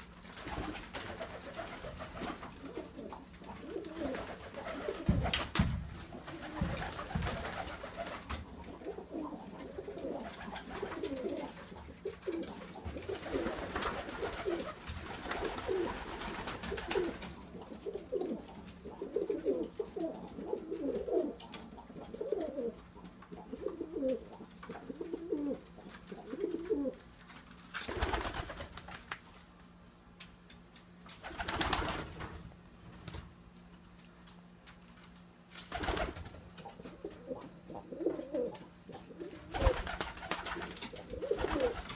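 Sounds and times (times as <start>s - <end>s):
pigeons cooing: 0.4s - 5.4s, 6.1s - 27.0s, 36.6s - 41.9s.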